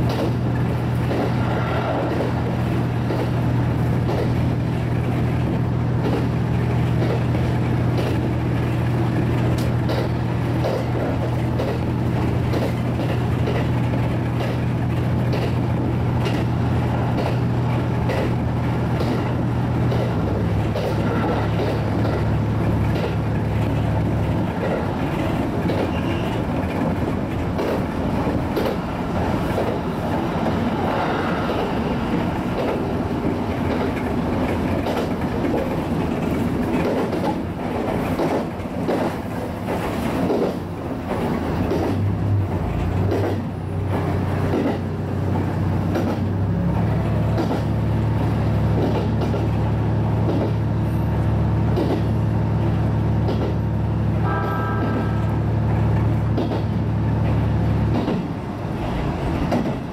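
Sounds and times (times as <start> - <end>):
train wheels clicking over rail joints: 0.0 - 59.9
diesel engine low drone: 49.6 - 59.4.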